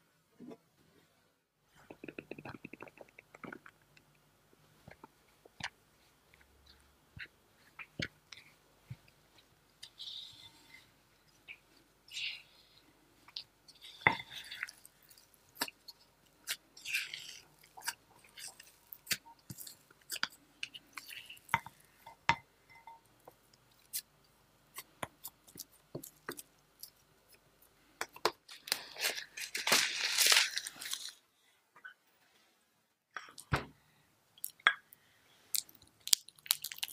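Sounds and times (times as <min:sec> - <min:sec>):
plastic wrap rustling: 0:28.5 - 0:31.2.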